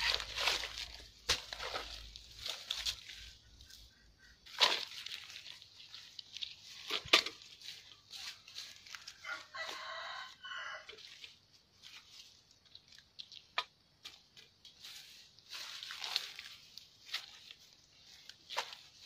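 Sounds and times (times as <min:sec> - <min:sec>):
hands rustling in mud and leaves: 0:00.0 - 0:19.0
rooster crowing: 0:08.9 - 0:11.0.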